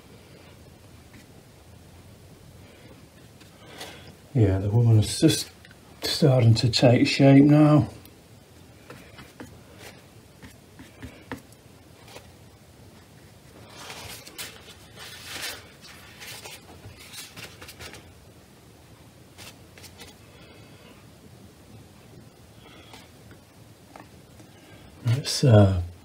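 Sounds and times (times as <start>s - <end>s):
tissue rustling on palette: 8.8s - 18.2s, 19.2s - 20.6s.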